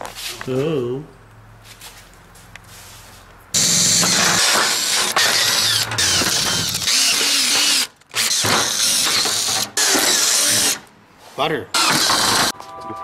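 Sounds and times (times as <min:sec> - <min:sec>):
power drill squealing through metal: 0:03.6 - 0:10.9, 0:11.8 - 0:12.5.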